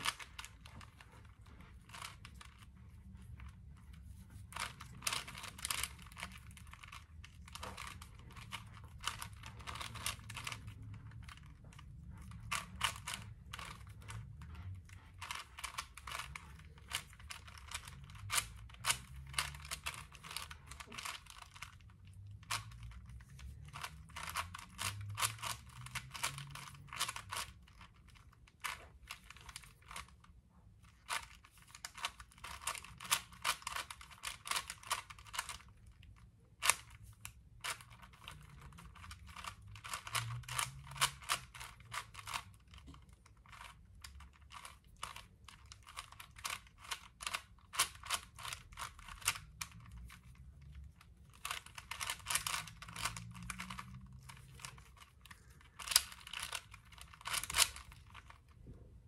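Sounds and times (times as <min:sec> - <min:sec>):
puzzle cube plastic clicking: 0:00.0 - 0:14.6, 0:15.2 - 0:58.6.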